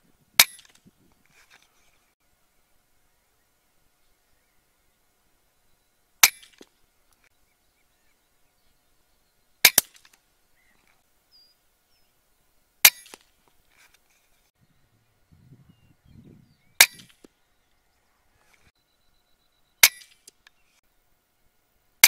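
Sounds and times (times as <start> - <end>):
air rifle shots: 16.8 - 17.3.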